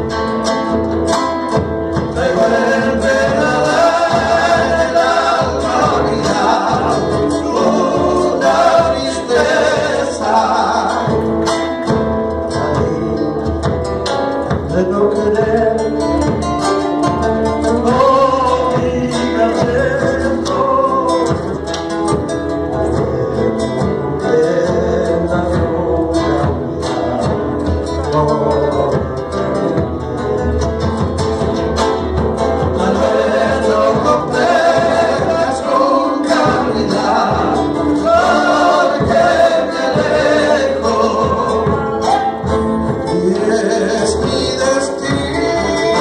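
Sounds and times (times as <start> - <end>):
strummed acoustic guitars: 0.0 - 46.0
drum beat: 1.4 - 46.0
person singing: 2.1 - 11.4, 12.3 - 13.8, 17.6 - 21.7, 32.7 - 46.0.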